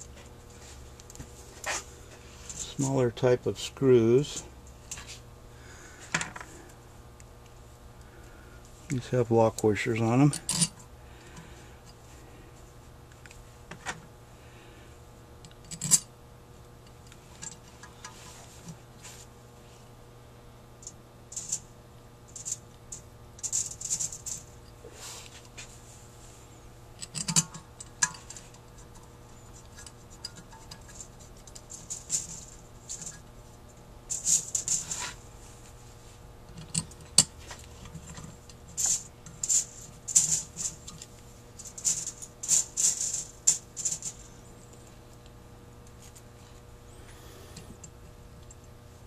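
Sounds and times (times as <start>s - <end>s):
faint steady hum: 0.0s - 49.0s
screws clicking and rattling on metal: 21.3s - 21.6s, 27.0s - 29.0s, 29.6s - 33.2s, 34.1s - 35.1s, 36.6s - 44.3s.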